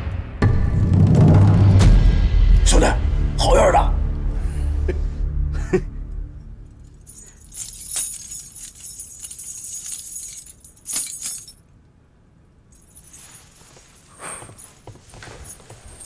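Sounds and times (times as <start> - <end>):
chain clanks: 6.7 - 11.7, 12.7 - 16.0
metal chain rattling and clinking: 6.7 - 11.7, 12.7 - 16.0.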